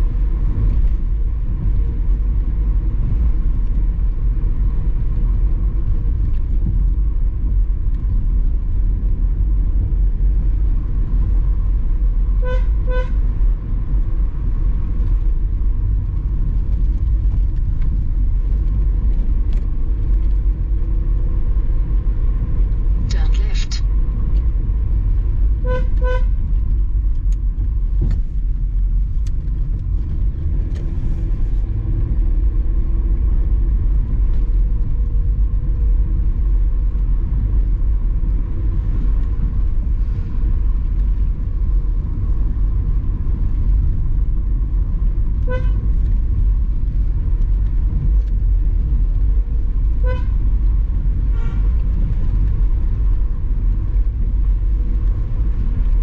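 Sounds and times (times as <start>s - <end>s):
car driving rumble: 0.0s - 56.0s
car horn toots: 12.4s - 13.2s, 25.6s - 26.4s, 45.4s - 46.0s, 50.0s - 50.4s.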